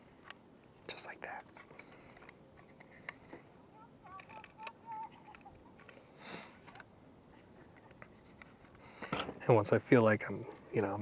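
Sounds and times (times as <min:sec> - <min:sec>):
film insert clicks and taps: 0:04.1 - 0:06.0.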